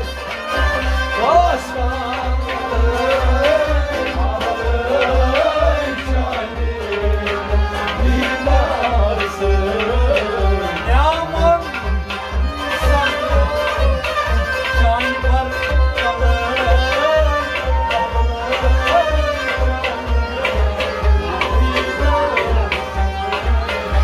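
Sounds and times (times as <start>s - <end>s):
hand drum beat: 0.0s - 24.0s
harmonium chords: 0.0s - 24.0s
person singing: 0.0s - 24.0s.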